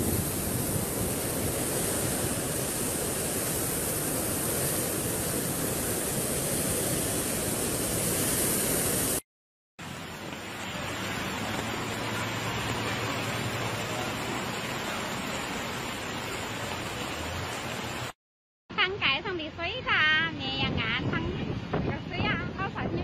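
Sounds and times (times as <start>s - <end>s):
floodwater rushing: 0.0s - 9.2s, 9.8s - 18.2s.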